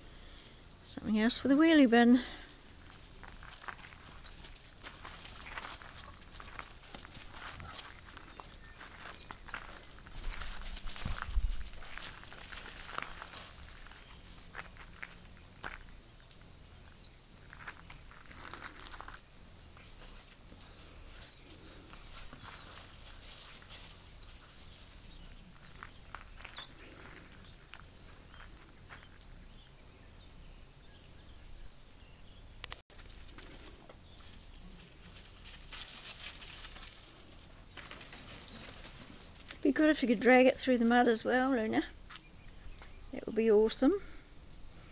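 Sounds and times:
steady high hiss: 0.0s - 44.9s
dog paws crunching on gravel: 2.8s - 16.0s, 17.4s - 29.1s, 33.0s - 40.4s.

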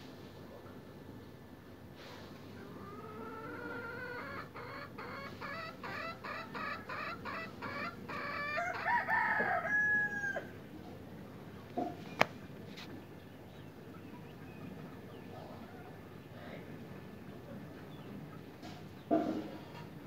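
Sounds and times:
rooster clucking and calling: 2.6s - 10.7s.

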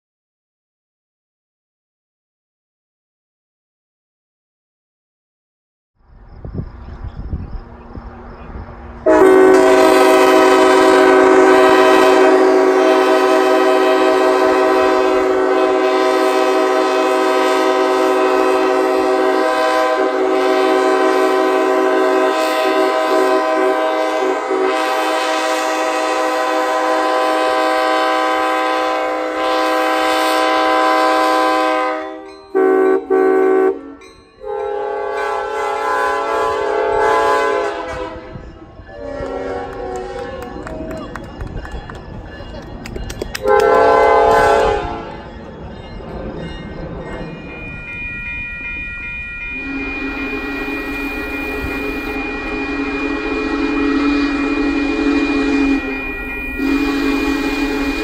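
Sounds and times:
locomotive air horn: 9.0s - 40.8s, 43.4s - 45.3s, 47.5s - 58.0s.

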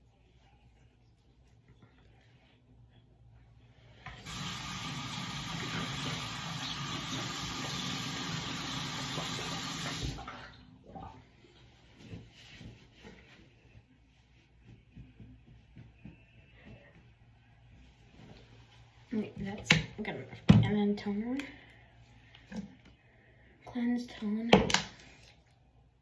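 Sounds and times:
sink tap running: 4.1s - 10.2s.

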